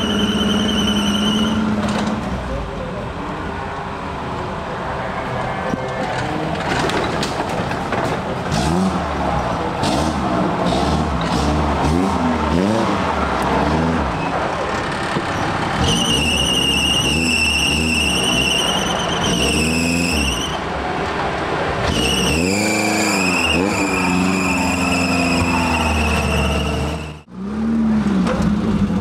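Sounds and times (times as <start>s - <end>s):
tyre squeal on rock: 0.0s - 1.8s, 14.2s - 20.6s, 21.9s - 27.2s
off-road vehicle engine revving: 8.4s - 20.5s, 21.8s - 29.0s.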